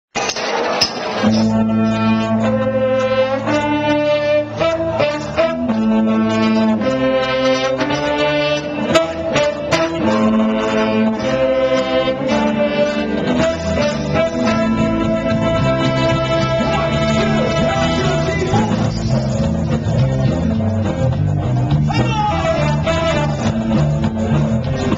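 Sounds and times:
bass guitar: 0:01.2 - 0:24.9
electric guitar: 0:01.2 - 0:24.9
horn section playing chords: 0:01.2 - 0:24.9.

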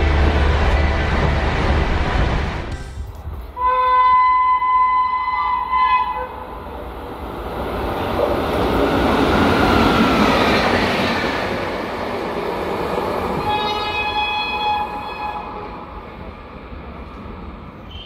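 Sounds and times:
train horn: 0:03.6 - 0:06.4, 0:13.4 - 0:15.8
train wheels rushing on rail: 0:06.4 - 0:18.0.

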